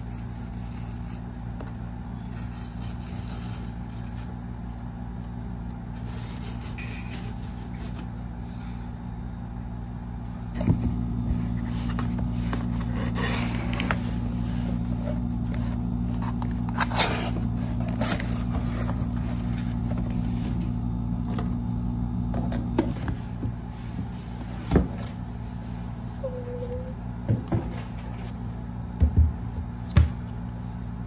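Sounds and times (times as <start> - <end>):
steady low hum: 0.0 - 31.0
cardboard scraping and rustling: 10.6 - 20.9.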